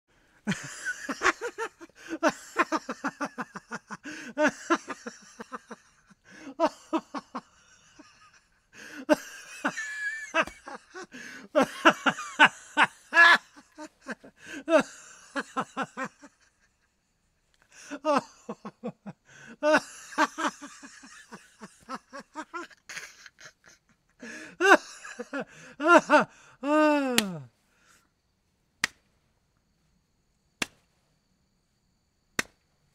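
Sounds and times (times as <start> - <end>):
man laughing hard: 0.4 - 17.0, 17.7 - 27.5
hand slapping knee: 10.3 - 10.8, 27.1 - 27.4, 28.8 - 29.2, 30.6 - 31.0, 32.4 - 32.6.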